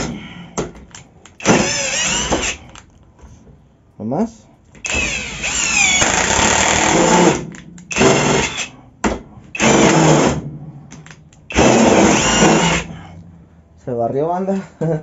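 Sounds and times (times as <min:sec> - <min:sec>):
power drill driving screw: 0:01.4 - 0:02.8, 0:04.8 - 0:08.7, 0:09.6 - 0:10.4, 0:11.5 - 0:12.9.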